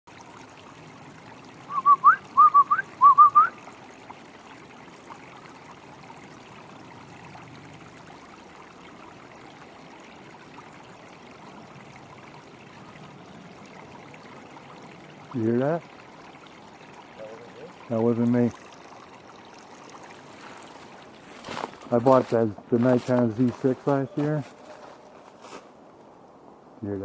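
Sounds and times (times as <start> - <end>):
running stream: 0.1 - 27.0
person whistling: 1.7 - 3.5.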